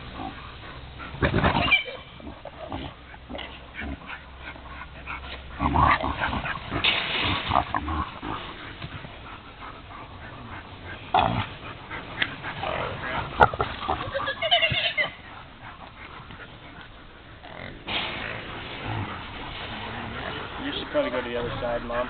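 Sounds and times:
animals squealing: 0:01.4 - 0:04.7, 0:10.0 - 0:17.7.

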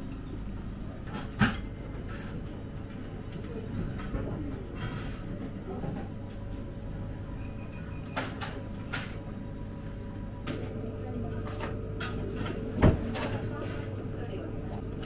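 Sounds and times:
steady low hum: 0:09.2 - 0:15.0.

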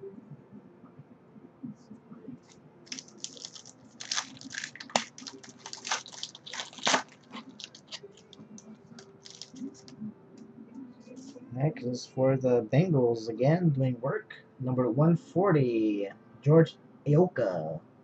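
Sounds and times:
wrapper crinkling and tearing: 0:02.9 - 0:08.4, 0:09.0 - 0:09.9.

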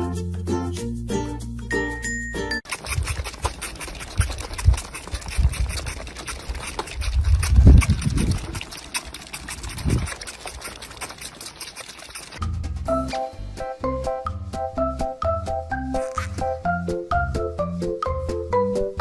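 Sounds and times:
goat kids sucking bottles: 0:02.6 - 0:12.4.

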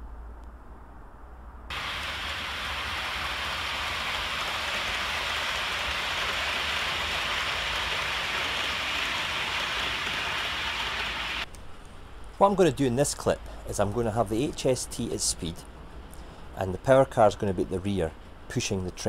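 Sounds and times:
model train wheels rolling: 0:01.7 - 0:11.4.

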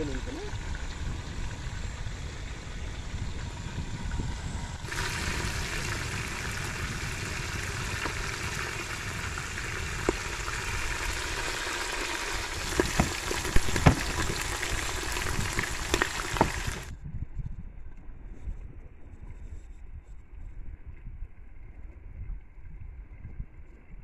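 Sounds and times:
fish sizzling in hot oil: 0:00.0 - 0:16.9
crackling oil pops: 0:04.9 - 0:11.2, 0:11.8 - 0:16.9.

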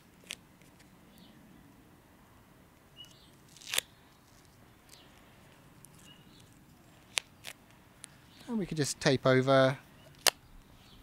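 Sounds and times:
tape peeling off roll: 0:03.0 - 0:08.2.

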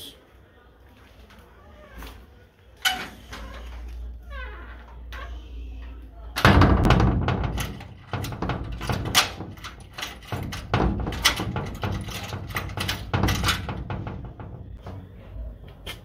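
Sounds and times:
knocks and rattles on metal door: 0:06.4 - 0:15.2.

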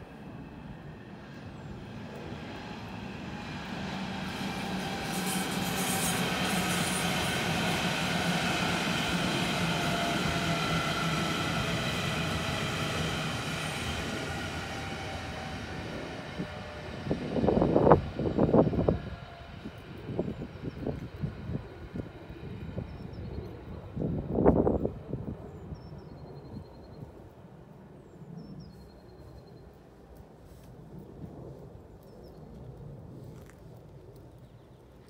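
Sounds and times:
wheels rumbling on rails: 0:00.0 - 0:27.4
electric train passing: 0:00.0 - 0:27.6
train motor whine: 0:02.6 - 0:21.6.

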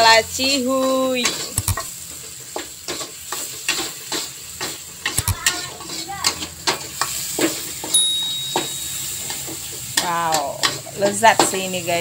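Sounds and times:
oil sizzling: 0:00.0 - 0:12.0
metal spatula scraping a wok: 0:00.8 - 0:07.9.

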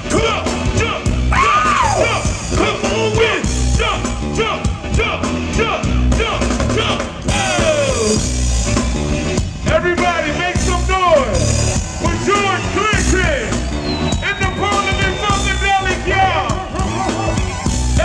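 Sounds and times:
voices singing over band: 0:00.0 - 0:08.4
funk band playing: 0:00.0 - 0:18.0.

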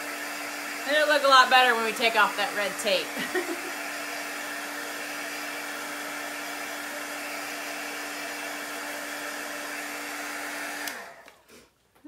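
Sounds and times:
heat gun blowing air: 0:00.0 - 0:11.7.

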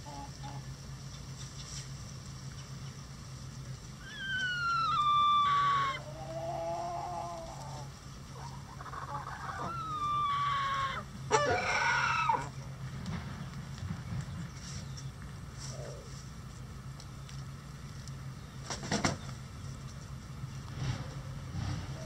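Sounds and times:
chickens clucking: 0:00.0 - 0:12.8, 0:17.0 - 0:22.0
chickens calling: 0:00.0 - 0:22.0
chickens squawking: 0:04.0 - 0:12.7.

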